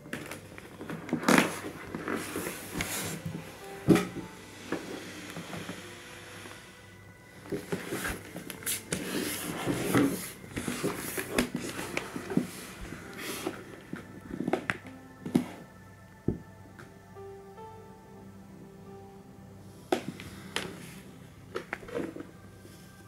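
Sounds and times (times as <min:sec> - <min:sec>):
paper rustling: 0:00.1 - 0:04.3.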